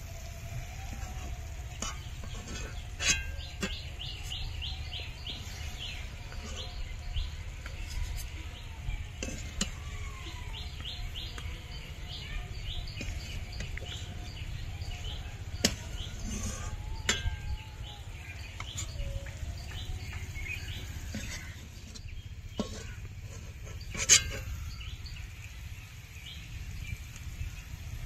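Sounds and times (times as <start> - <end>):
small birds chirping: 0.0 - 28.0
metal spatula clinking and scraping: 1.0 - 8.4, 9.1 - 9.8, 12.9 - 17.6, 20.5 - 24.8.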